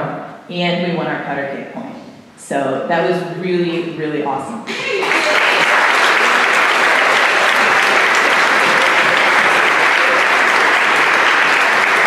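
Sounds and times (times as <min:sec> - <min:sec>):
audience applauding: 0:04.7 - 0:12.0.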